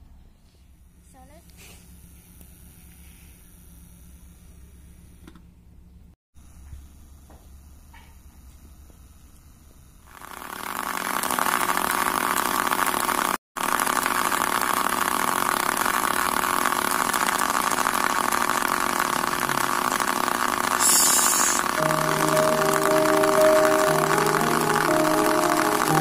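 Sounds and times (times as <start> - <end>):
small motor buzzing: 0.8 - 5.4, 6.4 - 26.0
short hiss: 20.8 - 21.7.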